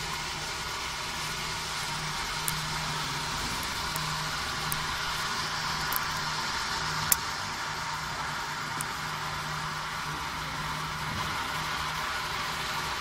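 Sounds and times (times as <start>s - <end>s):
aerator hissing air and water: 0.1s - 13.0s
faint ticks: 2.4s - 2.8s.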